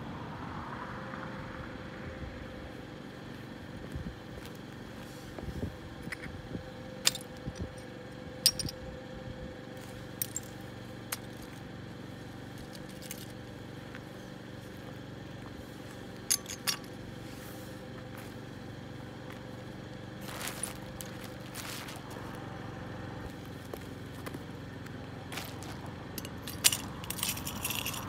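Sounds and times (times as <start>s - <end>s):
steady background hum: 0.0s - 28.0s
plastic bag rustle: 20.2s - 22.2s, 25.3s - 25.8s.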